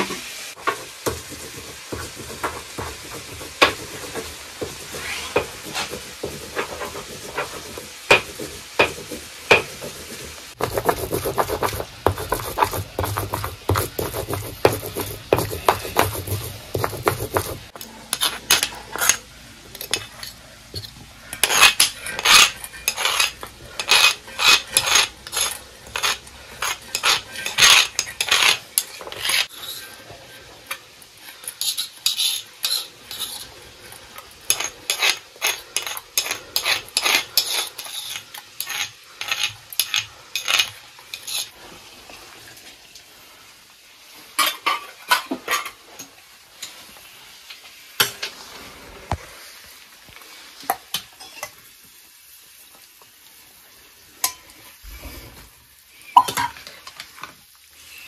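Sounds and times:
metal spoon scraping a pan: 0.6s - 41.6s, 44.4s - 46.8s.

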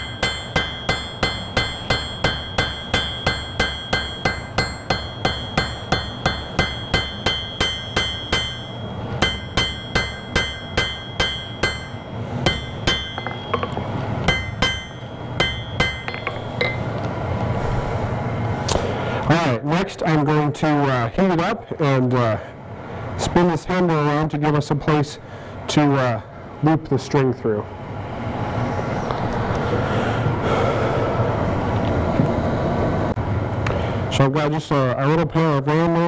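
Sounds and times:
hammer striking iron on anvil: 0.0s - 17.0s.

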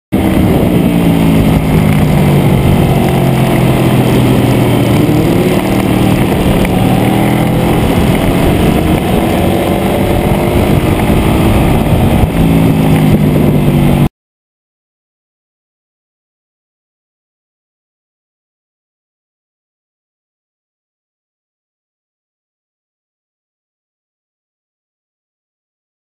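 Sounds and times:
motorcycle engine at high speed: 0.1s - 14.1s
wind rush on microphone: 0.1s - 14.1s.

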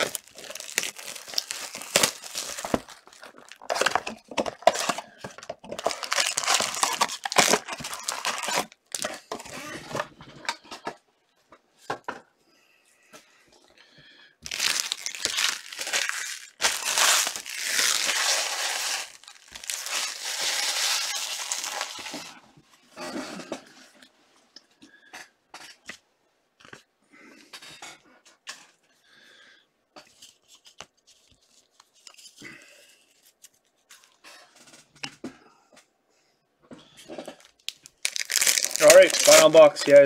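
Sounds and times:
plastic wrapping crinkling and tearing: 0.0s - 9.8s, 14.4s - 22.4s, 37.3s - 40.0s.

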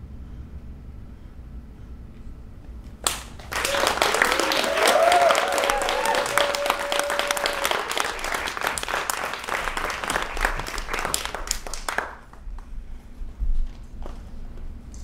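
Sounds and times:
audience applauding: 3.0s - 12.4s.

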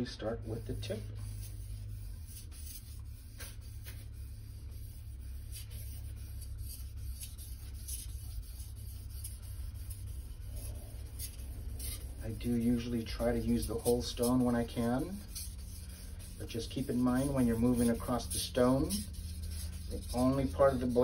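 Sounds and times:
steady low hum: 0.0s - 21.0s
knife scraping on wet stone: 13.6s - 21.0s.

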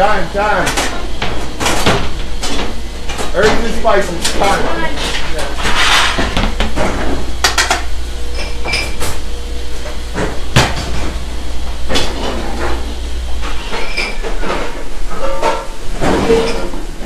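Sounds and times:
steady low hum: 0.0s - 17.0s
pans and plates clanking: 0.7s - 9.2s, 11.9s - 17.0s.

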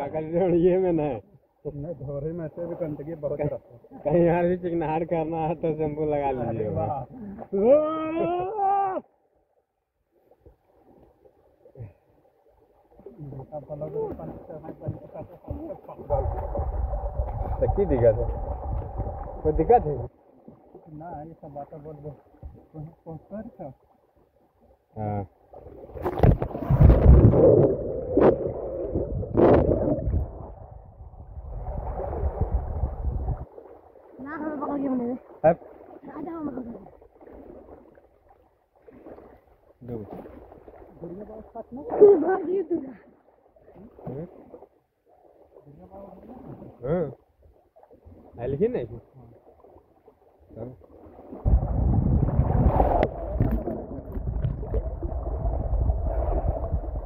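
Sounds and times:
river water splashing: 7.1s - 57.0s
low rumble: 16.0s - 20.1s, 51.5s - 57.0s
river water churning: 31.5s - 46.8s, 49.2s - 57.0s.

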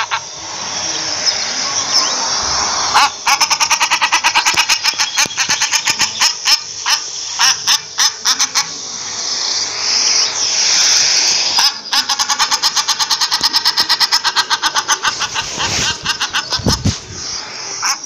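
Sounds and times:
duck sharp calls: 0.0s - 0.4s, 2.9s - 8.8s, 11.3s - 18.0s
rushing noise: 0.0s - 5.0s, 13.6s - 18.0s.

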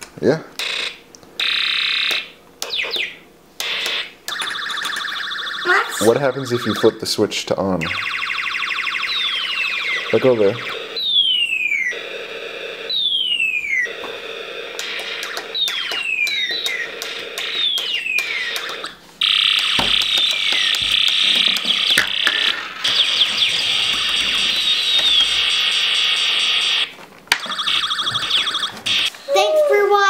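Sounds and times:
warbling high electronic tone: 4.3s - 7.2s, 7.8s - 29.2s
falling electronic zaps: 14.7s - 27.0s
sharp clicks: 14.8s - 18.9s.

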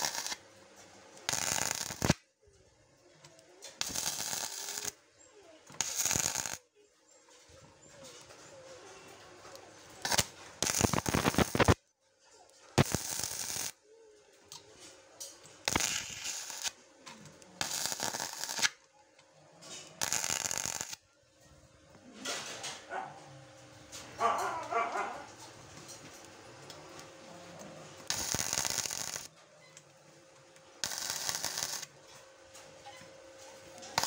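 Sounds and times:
welding arc crackling: 0.0s - 0.4s, 1.2s - 2.2s, 3.8s - 5.0s, 5.8s - 6.6s, 10.0s - 11.8s, 12.8s - 13.8s, 15.6s - 16.8s, 17.6s - 18.8s, 20.0s - 21.0s, 28.0s - 29.3s, 30.8s - 31.9s
dog barking: 22.8s - 23.4s, 24.2s - 25.4s.

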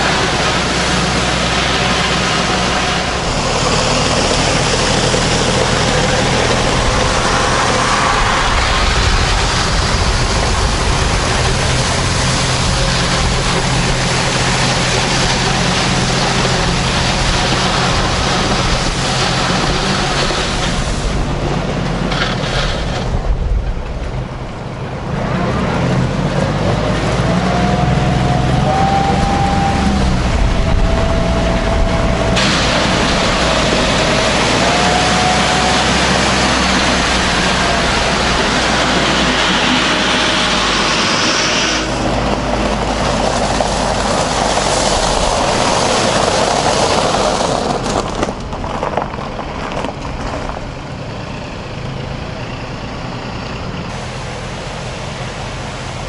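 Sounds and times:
car tyres crunching gravel: 0.0s - 52.3s
tractor crunching gravel: 0.0s - 56.0s
tractor engine running: 0.0s - 56.0s.

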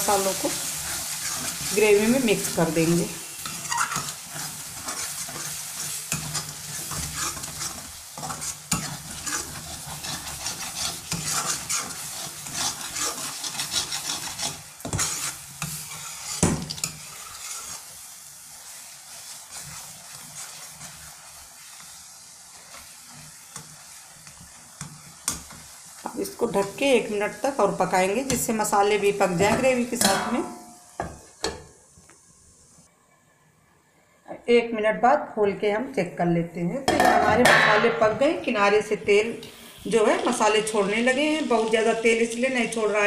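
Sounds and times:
metal spatula scraping pot: 0.0s - 18.1s, 18.7s - 21.7s
gravy sizzling: 0.0s - 34.8s, 36.9s - 43.0s.

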